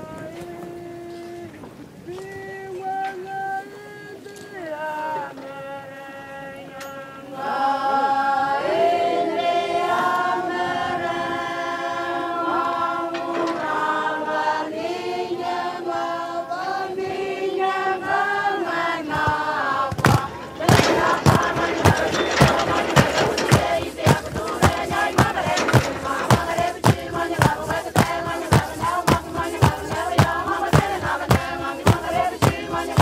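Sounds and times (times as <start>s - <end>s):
choir singing in harmony: 3.6s - 33.0s
sharp percussive beats: 19.9s - 33.0s.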